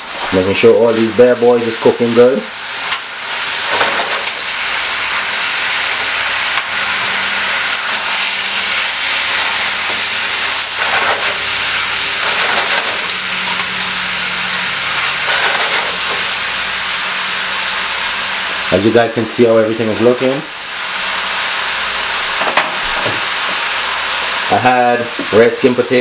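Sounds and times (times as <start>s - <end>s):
food sizzling in a skillet: 0.0s - 26.0s
tongs scraping a pan: 5.9s - 14.0s, 14.8s - 16.3s.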